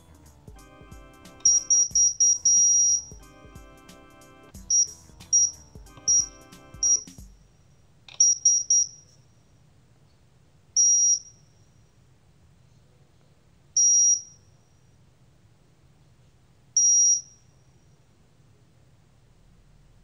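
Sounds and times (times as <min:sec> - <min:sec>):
alarm keypad beeping: 0:00.6 - 0:07.2.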